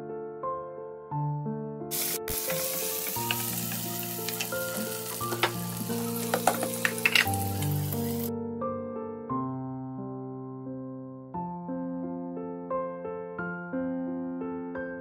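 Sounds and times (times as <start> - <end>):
soft piano music: 0.0 - 15.0
vegetables sizzling in oil: 1.9 - 8.3
wooden spatula tapping pan: 2.4 - 7.7.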